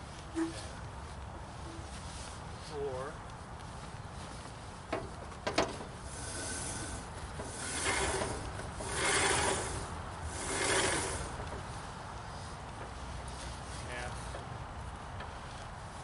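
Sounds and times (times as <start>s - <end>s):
hand tool scraping metal wheel: 0.4s - 0.7s, 6.0s - 11.5s.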